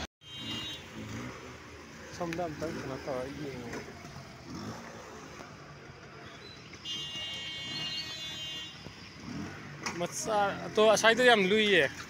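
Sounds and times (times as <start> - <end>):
traffic on wet road: 0.0 - 12.0
high-pitched vehicle horn: 0.2 - 1.3, 6.8 - 8.9.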